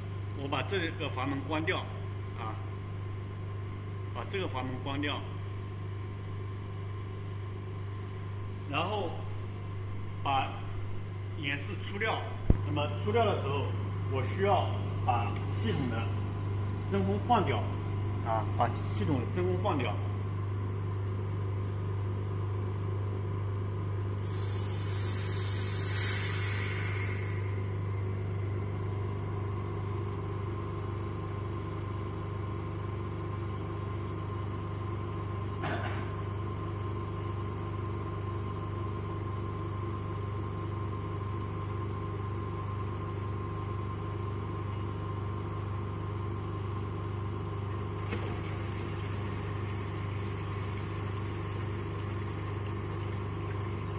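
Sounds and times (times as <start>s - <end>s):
vacuum system humming: 0.0s - 53.9s
air hissing through valve: 24.1s - 27.7s.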